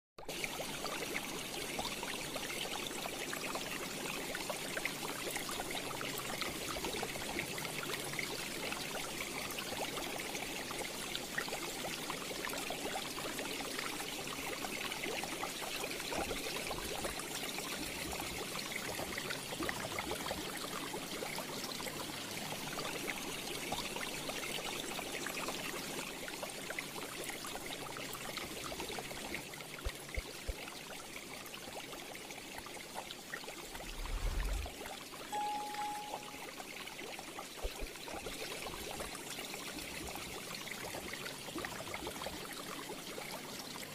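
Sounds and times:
aquarium filter water trickling: 0:00.2 - 0:43.9
fine bubbling: 0:33.7 - 0:34.9.

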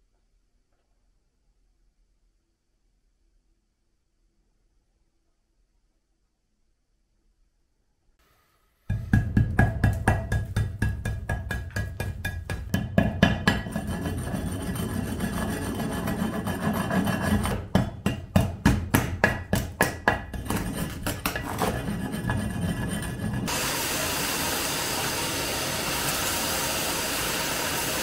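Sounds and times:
scraping and tapping on concrete: 0:08.9 - 0:23.5
hammer striking concrete: 0:08.9 - 0:23.6.

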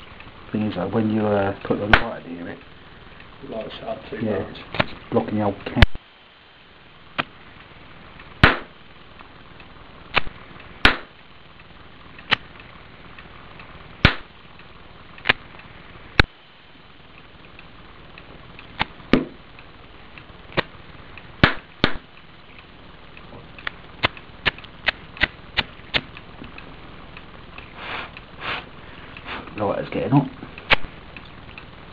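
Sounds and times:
sharp gas pops: 0:08.4 - 0:08.8, 0:10.1 - 0:11.2, 0:14.0 - 0:14.3, 0:18.8 - 0:19.4, 0:21.4 - 0:22.1, 0:24.0 - 0:26.1, 0:27.6 - 0:29.6, 0:30.7 - 0:30.9.

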